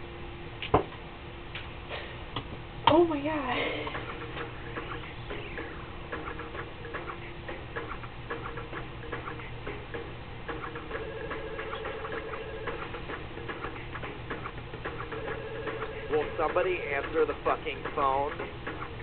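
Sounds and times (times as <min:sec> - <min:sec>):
steady ringtone tone: 0:10.7 - 0:13.0, 0:15.0 - 0:17.1.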